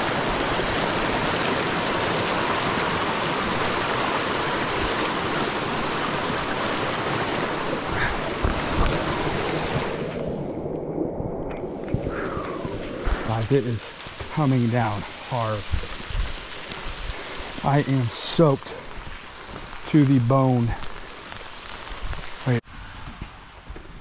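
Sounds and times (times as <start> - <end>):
brook water rushing: 0.0 - 10.9, 11.6 - 22.6
heavy rain: 0.0 - 23.0.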